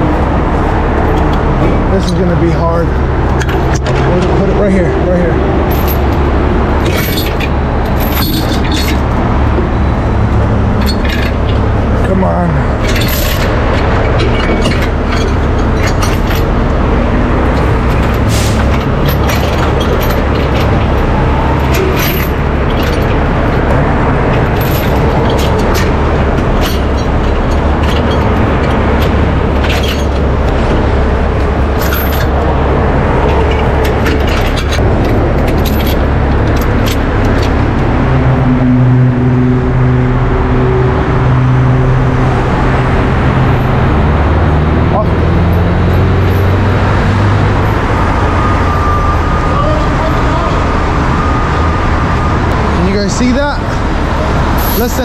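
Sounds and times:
diesel engine running: 0.0s - 55.0s
chain clinking and knocking: 1.0s - 4.9s, 5.6s - 9.9s, 10.7s - 12.1s, 12.8s - 37.8s.

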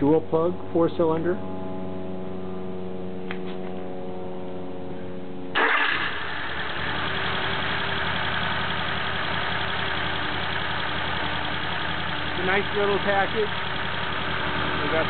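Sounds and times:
car engine starting and idling: 5.5s - 15.0s.

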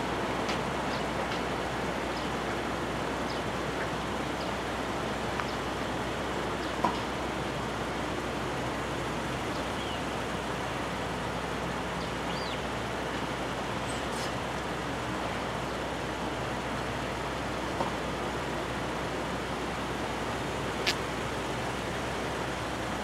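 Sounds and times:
train rumbling at station: 0.0s - 23.0s
small click: 20.8s - 21.0s.

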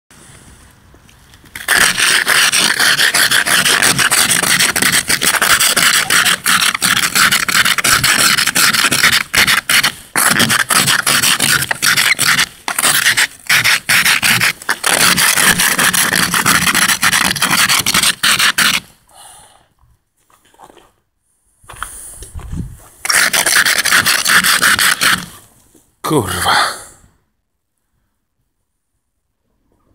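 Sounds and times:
ice scraper rasping on windscreen: 1.5s - 19.0s, 22.6s - 25.5s.

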